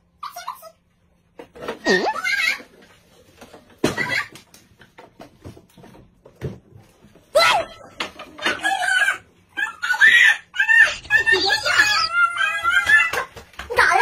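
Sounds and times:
children squealing and crying: 0:08.4 - 0:13.4.

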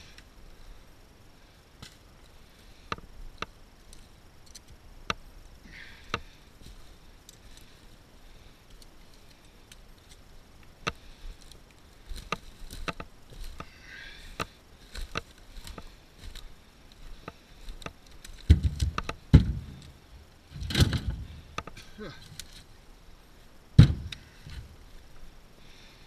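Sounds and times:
dry branches snapping: 0:10.8 - 0:20.0, 0:20.6 - 0:22.7.

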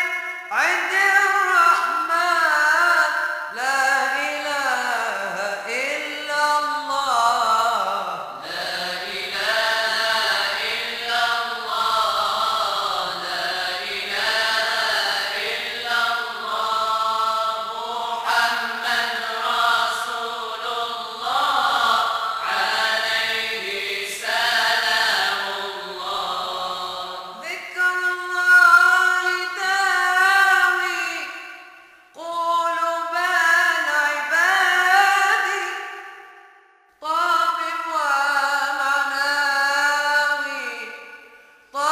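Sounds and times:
group of voices chanting: 0:08.3 - 0:27.4.

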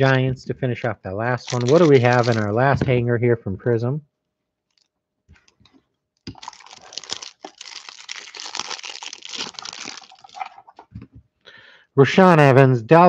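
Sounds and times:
plastic wrapper tearing and crinkling: 0:01.4 - 0:02.5, 0:06.2 - 0:10.8.

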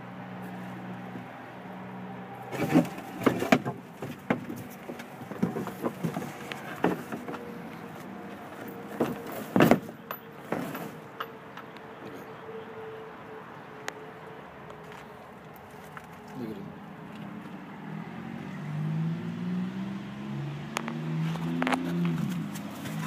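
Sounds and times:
knocks and clatters: 0:02.5 - 0:07.5, 0:08.5 - 0:12.2.

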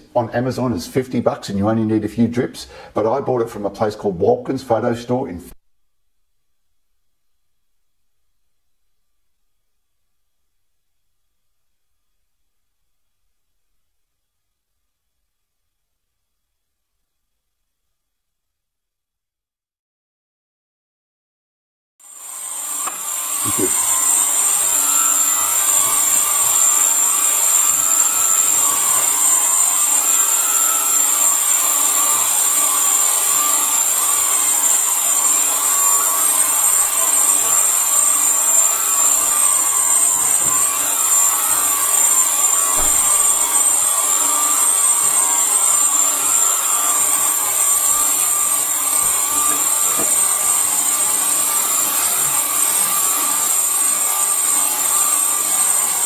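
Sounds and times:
constant high whine: 0:22.0 - 0:56.0
ultrasonic cleaner hiss: 0:22.3 - 0:53.5.

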